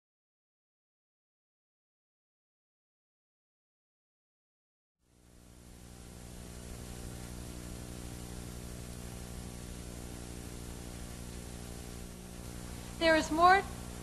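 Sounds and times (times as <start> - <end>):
electrical mains hum: 5.0 - 14.0
recording hiss: 5.1 - 14.0.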